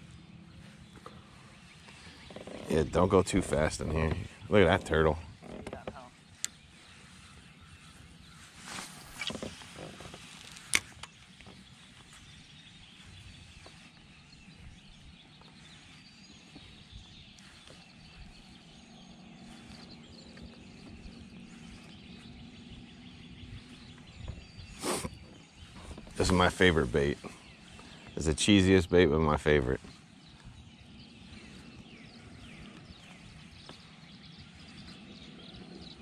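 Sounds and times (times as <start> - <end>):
handling noises: 8.5 - 12.0.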